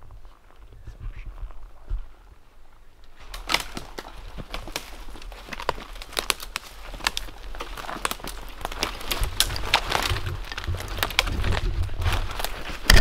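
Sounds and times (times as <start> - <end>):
brush rustling: 3.0 - 13.0
twigs snapping: 3.0 - 13.0
footsteps crunching through undergrowth: 3.1 - 13.0.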